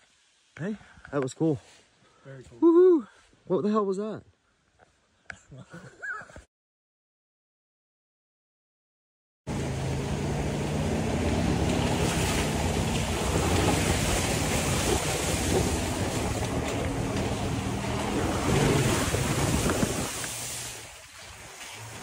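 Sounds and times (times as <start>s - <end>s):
car engine running: 9.5s - 20.4s
water and mud spraying off tyre: 9.5s - 22.0s
wind on microphone: 11.8s - 22.0s.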